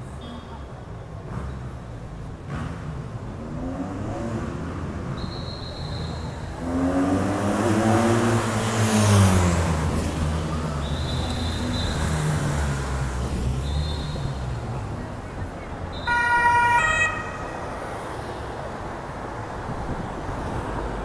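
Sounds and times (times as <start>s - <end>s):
tyre and wind noise: 18.9s - 21.0s.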